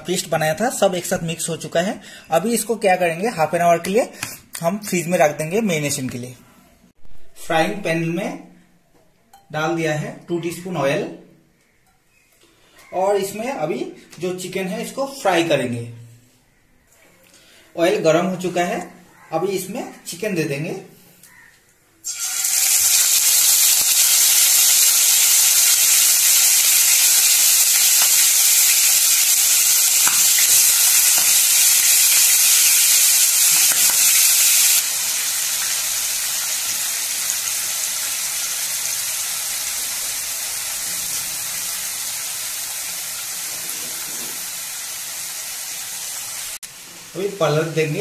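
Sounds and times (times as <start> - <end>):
chicken sizzling in hot oil: 22.0 - 48.0.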